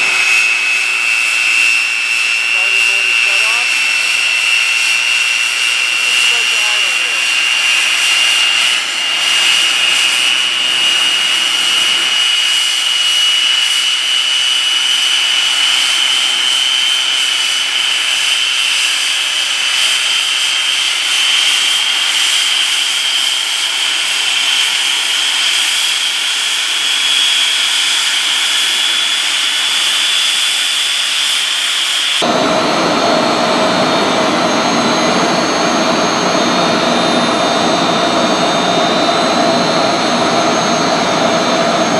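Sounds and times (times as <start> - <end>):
gas turbine whine and hiss: 0.0 - 13.8, 32.2 - 41.9
deep turbine rumble: 0.0 - 26.4, 32.2 - 41.9.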